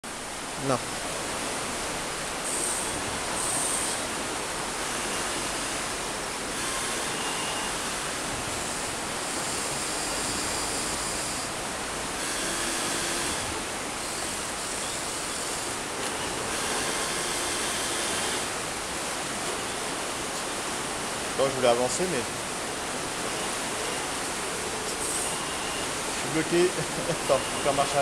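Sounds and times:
flowing water rushing: 0.0s - 28.0s
small electric motors whirring: 2.5s - 4.1s, 4.8s - 5.9s, 6.5s - 11.6s, 12.2s - 18.6s, 23.2s - 28.0s.

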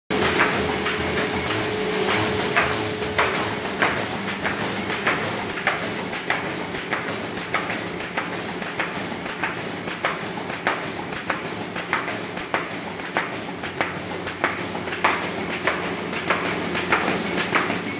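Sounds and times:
machine mechanical din: 0.1s - 17.9s
sharp machine clack: 0.1s - 17.9s
steady machine whine: 0.1s - 17.9s.

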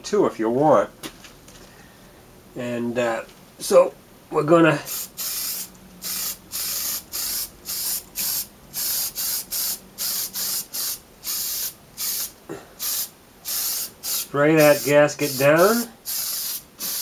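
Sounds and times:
aerosol can hissing in bursts: 4.8s - 17.0s.

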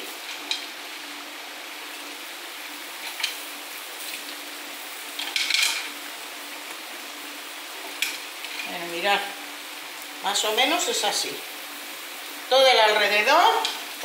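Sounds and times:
paella sizzling in pan: 0.0s - 14.0s
mussel shells clicking on pan: 5.2s - 5.9s.

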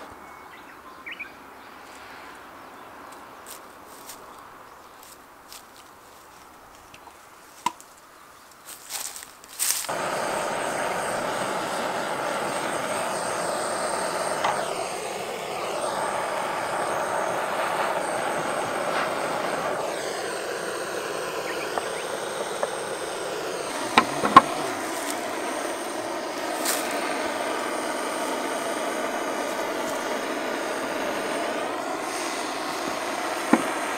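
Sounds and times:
gas torch hissing: 8.9s - 33.9s.

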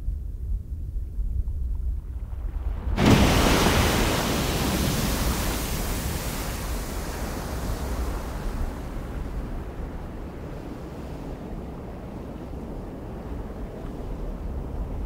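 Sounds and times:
deep rumble: 0.0s - 3.5s
strong gust of wind: 1.1s - 15.0s.

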